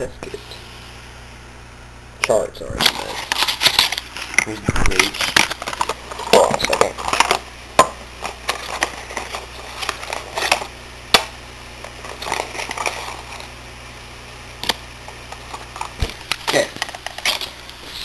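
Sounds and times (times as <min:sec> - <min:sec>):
paper and plastic crinkling: 0:02.8 - 0:07.4, 0:08.2 - 0:10.7, 0:12.0 - 0:13.5, 0:15.4 - 0:18.0.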